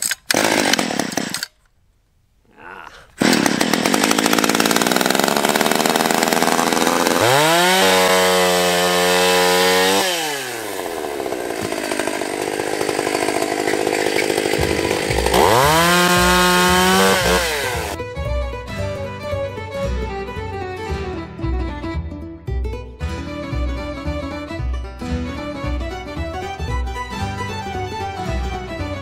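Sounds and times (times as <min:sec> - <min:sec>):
chainsaw revving and idling: 0:00.3 - 0:01.5, 0:03.2 - 0:18.0.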